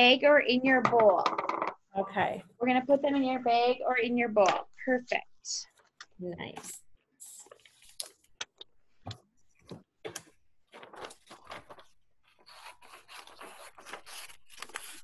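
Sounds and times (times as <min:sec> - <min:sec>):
paper rustling: 0:09.6 - 0:15.0
scissors cutting paper: 0:12.3 - 0:15.0.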